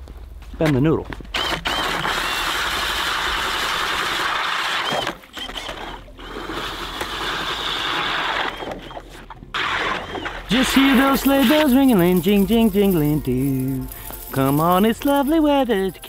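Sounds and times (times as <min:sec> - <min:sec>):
ice auger grinding through ice: 0:01.4 - 0:16.0.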